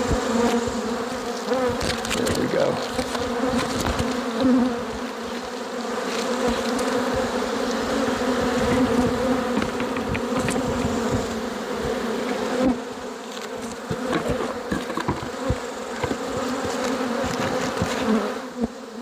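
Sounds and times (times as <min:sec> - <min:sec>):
honey bees buzzing: 0:00.0 - 0:19.0
short knocks: 0:09.5 - 0:11.4.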